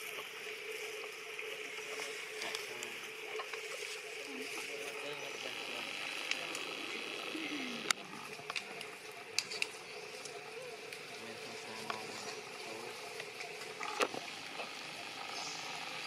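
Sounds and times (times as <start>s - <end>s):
forest insects humming: 0.0s - 16.0s
sharp clicks and crackles: 4.9s - 11.1s.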